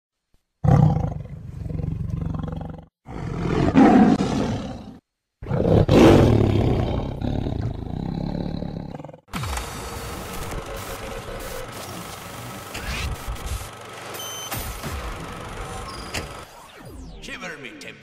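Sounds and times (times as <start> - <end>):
big cat roaring: 0.6 - 9.3.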